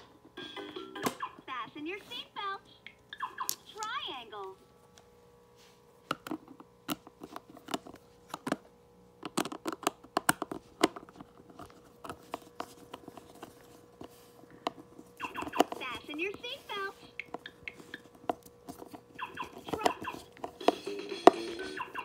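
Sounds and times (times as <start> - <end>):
plastic toy clicking and knocking: 9.2 - 11.0.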